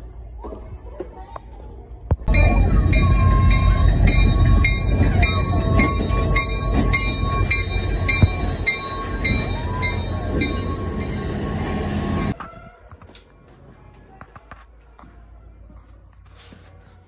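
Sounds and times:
bell ringing: 2.3 - 12.4
diesel locomotive rumbling: 2.3 - 12.4.

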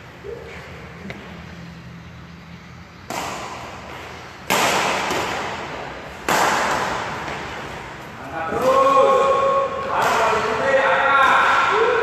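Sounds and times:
racket hitting shuttlecock: 3.0 - 12.0.

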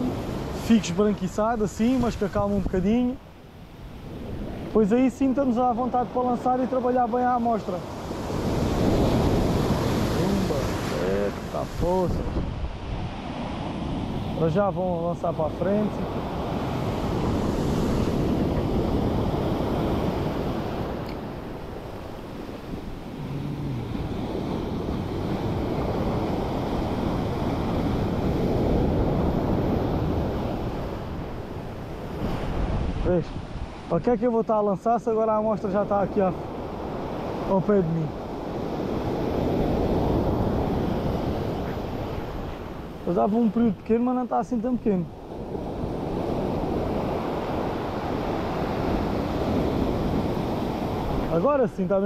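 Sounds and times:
sea surf rushing: 0.0 - 52.0
waves surging against rocks: 0.0 - 52.0
wind buffeting microphone: 7.8 - 14.8, 15.5 - 33.9.

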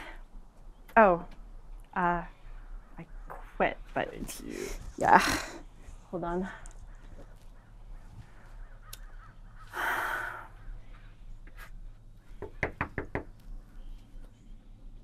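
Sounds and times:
knocks on wooden door: 12.4 - 13.3.

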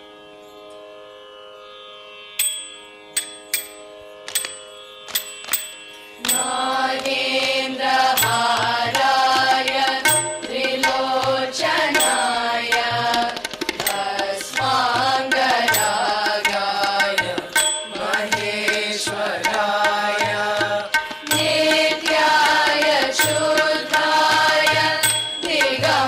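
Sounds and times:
girls singing together: 6.2 - 26.0.

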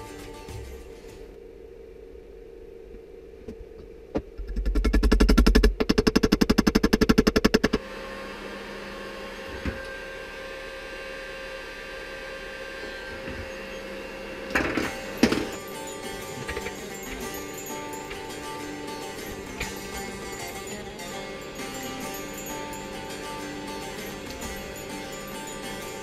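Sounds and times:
pulsing mechanical rattle: 0.0 - 7.8, 13.6 - 26.0
heat gun fan whine: 0.0 - 26.0.

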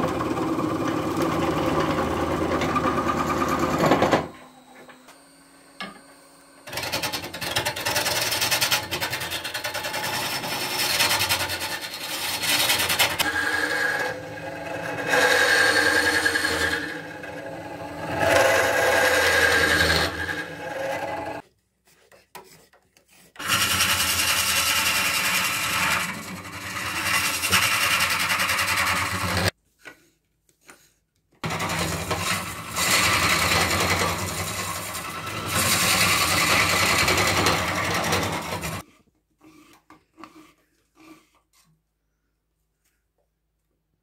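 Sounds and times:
lathe tool scraping wood: 0.0 - 21.4, 22.0 - 29.6, 31.4 - 41.7.

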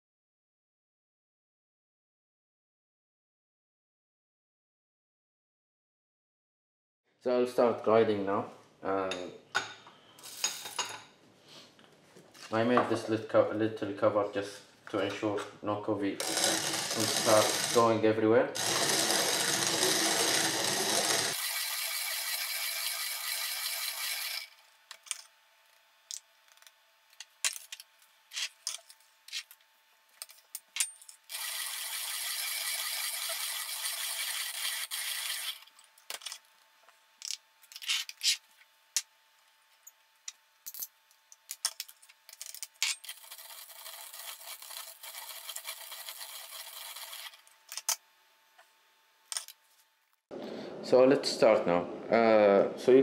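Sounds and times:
coffee grinder rasping: 16.2 - 18.0, 18.6 - 24.6, 31.3 - 35.8, 43.0 - 47.9.

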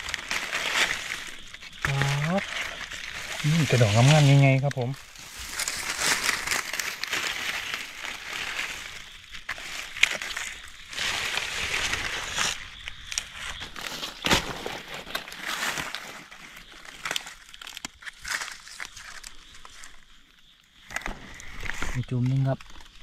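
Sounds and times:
twigs snapping: 0.0 - 20.1, 20.8 - 23.0
leaves and grass rustling: 0.0 - 23.0.

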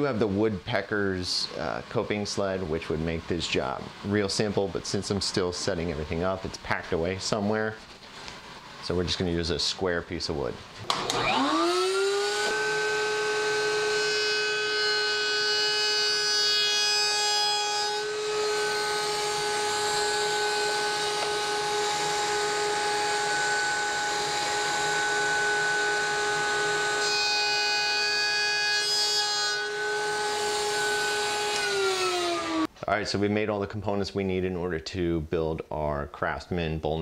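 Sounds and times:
router bit cutting wood: 10.9 - 32.7
router high whine: 10.9 - 32.7.

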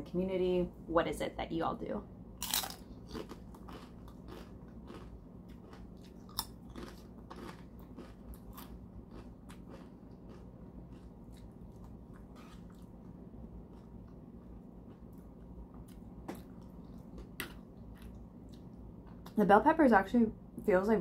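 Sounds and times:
chewing crunchy chip: 2.4 - 18.7.

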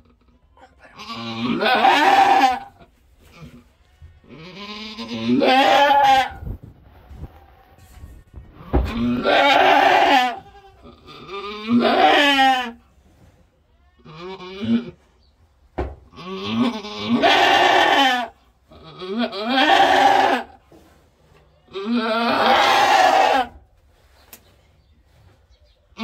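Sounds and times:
goat bleating loudly: 0.8 - 6.4, 8.6 - 12.8, 13.8 - 15.0, 16.1 - 20.6, 21.7 - 23.6.

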